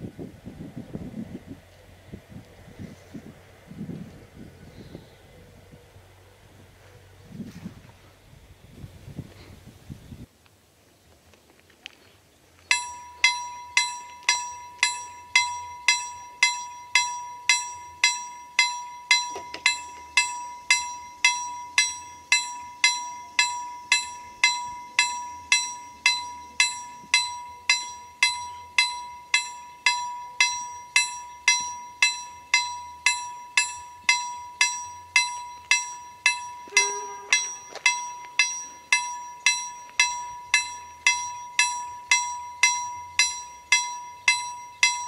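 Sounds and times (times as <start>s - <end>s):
level-crossing bell striking: 12.7s - 45.0s.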